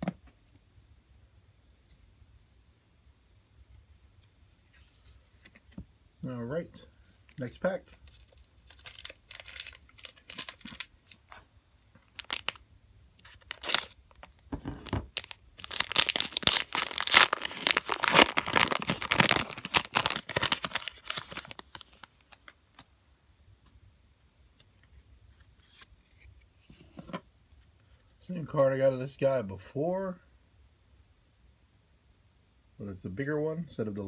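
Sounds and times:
foil wrapper crinkling and tearing: 8.0s - 11.4s, 12.0s - 12.6s, 13.2s - 22.8s.

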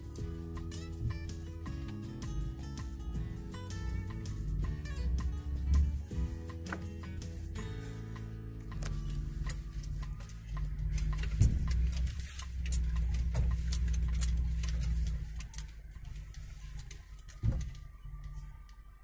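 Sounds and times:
car cabin road rumble: 0.0s - 19.0s
rattling clicks: 8.6s - 18.7s.

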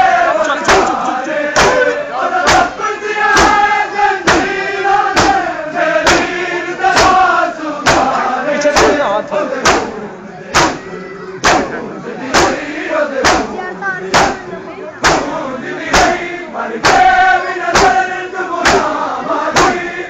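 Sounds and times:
crowd of men chanting: 0.0s - 20.0s
chest-beating claps in unison: 0.4s - 2.8s, 3.4s - 3.7s, 4.3s - 4.6s, 5.2s - 5.4s, 6.0s - 9.0s, 9.6s - 10.8s, 11.4s - 14.4s, 15.0s - 19.0s, 19.6s - 19.9s.

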